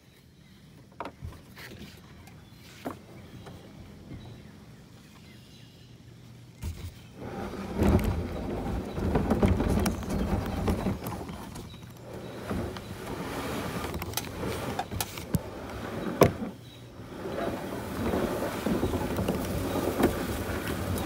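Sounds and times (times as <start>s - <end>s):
paddle splashing: 6.7s - 21.0s.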